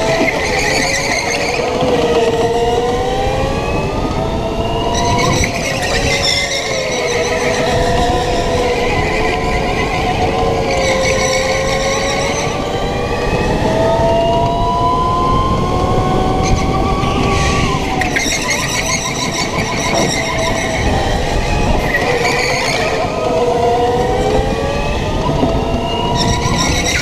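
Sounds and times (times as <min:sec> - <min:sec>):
tyres squealing: 0:00.0 - 0:02.5, 0:04.8 - 0:12.7, 0:16.5 - 0:23.4, 0:25.9 - 0:27.0
go-kart motor whine: 0:00.0 - 0:27.0.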